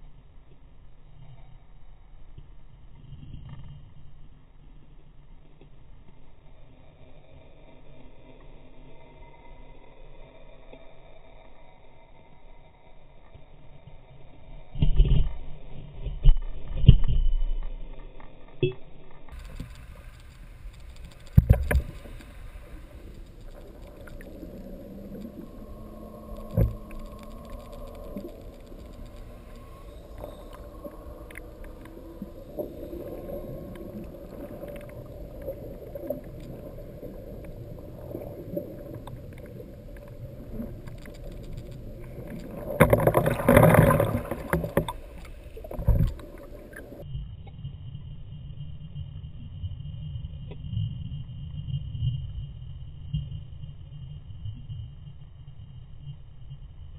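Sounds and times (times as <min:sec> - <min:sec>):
underwater low rumble and hum: 0:00.0 - 0:56.9
rushing water: 0:19.4 - 0:47.0.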